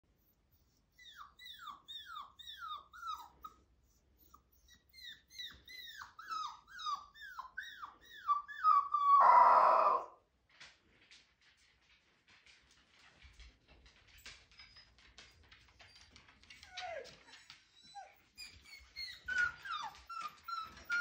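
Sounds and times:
harsh puppy cry: 4.9 - 10.2
puppy howling cries: 5.3 - 10.2.

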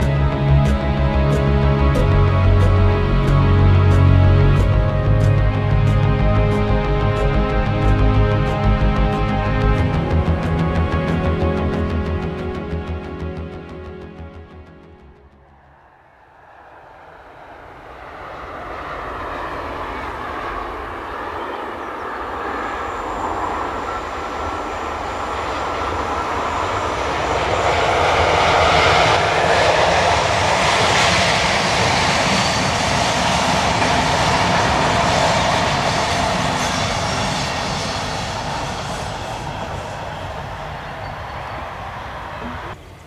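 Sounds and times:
passenger train rolling on rails: 15.5 - 43.0.

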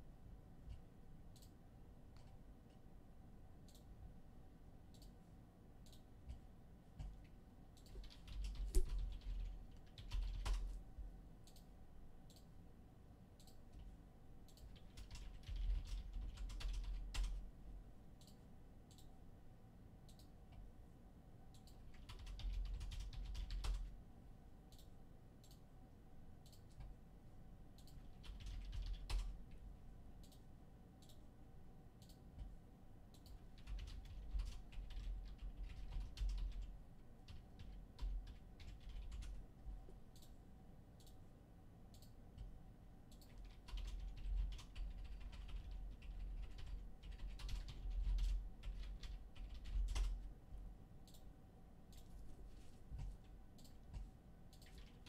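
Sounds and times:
computer keyboard typing: 7.0 - 10.8, 14.5 - 17.4, 21.5 - 23.9, 27.8 - 29.6, 33.2 - 39.4, 43.1 - 50.3, 53.0 - 55.0.

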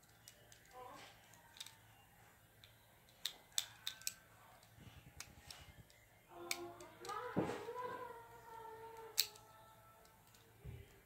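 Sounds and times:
plastic toy clicks and snaps: 0.0 - 1.8, 2.6 - 7.2, 9.0 - 10.5.

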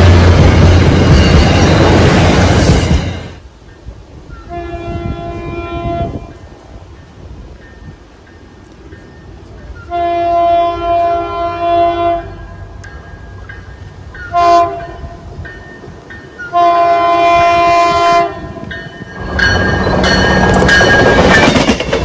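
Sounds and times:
train rumble: 0.0 - 22.0
train air horn blasts: 4.4 - 6.4, 9.8 - 12.7, 14.3 - 15.2, 16.5 - 18.7.

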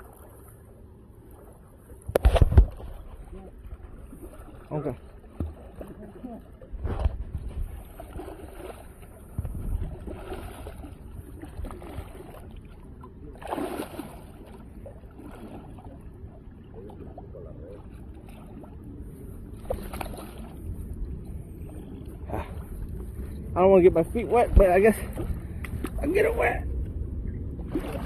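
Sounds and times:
fish thrashing and splashing: 4.2 - 12.7, 13.4 - 15.9.

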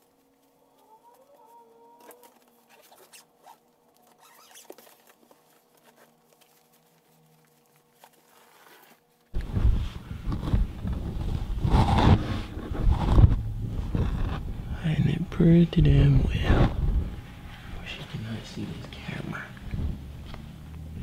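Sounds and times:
clothes and suitcase rustling: 2.0 - 15.1
hand rubbing camera microphone: 8.1 - 18.1.

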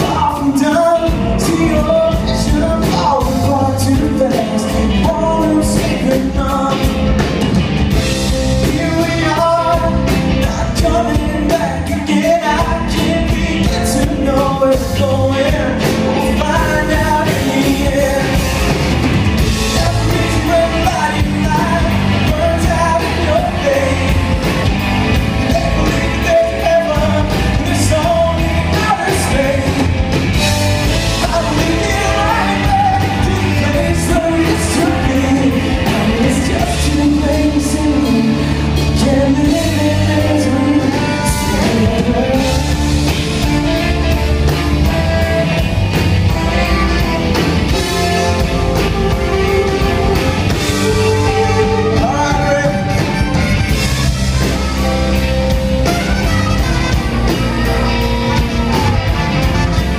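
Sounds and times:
bass guitar: 0.0 - 59.9
drums: 0.0 - 59.9
electric guitar: 0.0 - 59.9
keyboard: 0.0 - 59.9
person singing: 0.0 - 59.9
trumpet and saxophone: 7.9 - 59.9.

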